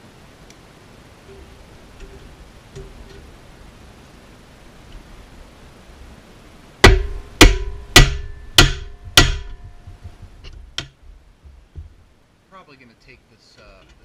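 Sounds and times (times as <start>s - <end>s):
hammer striking metal with ringing: 6.8s - 10.9s
man talking: 12.5s - 14.0s.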